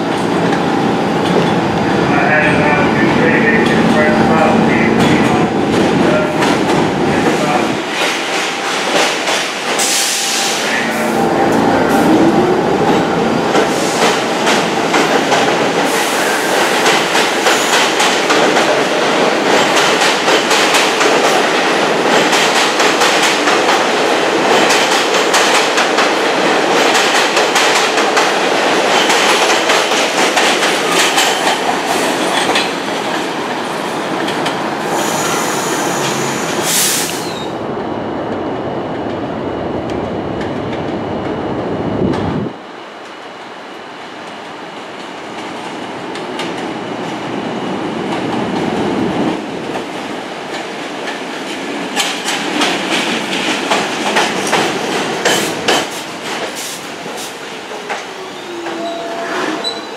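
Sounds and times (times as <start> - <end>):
train wheels clacking over rail joints: 13.5 - 33.3, 50.5 - 58.9
high-pitched wheel squeal: 58.2 - 59.9.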